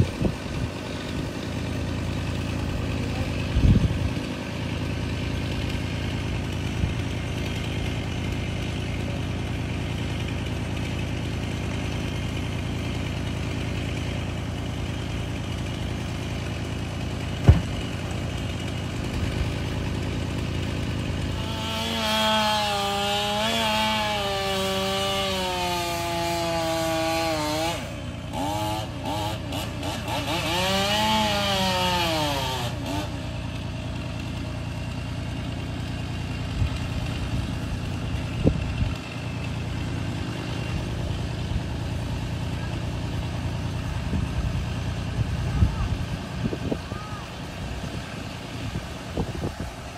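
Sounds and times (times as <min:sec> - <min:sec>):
chainsaw revving and cutting: 0:00.0 - 0:49.9
engine idling: 0:00.0 - 0:49.9
sharp knock: 0:17.4 - 0:17.9.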